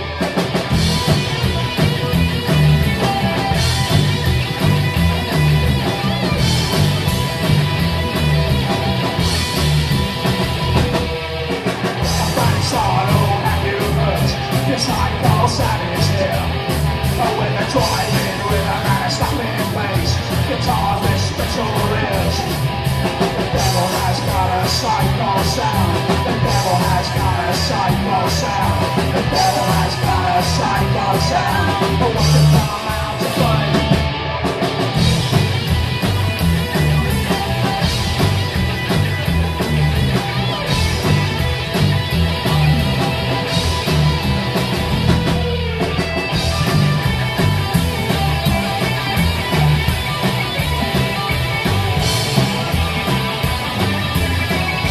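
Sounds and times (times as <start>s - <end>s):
drums: 0.0s - 54.9s
electric guitars: 0.0s - 54.9s
slapped upright bass: 0.7s - 11.0s, 35.0s - 54.9s
shouted singing: 23.5s - 34.2s.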